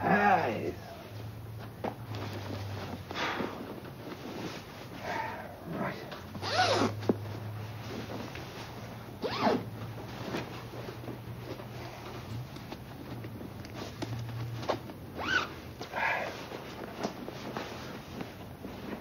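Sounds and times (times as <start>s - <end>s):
zip being worked: 6.4s - 7.0s, 9.2s - 9.7s, 15.2s - 15.6s
nylon sleeping bag rustling: 6.4s - 19.0s.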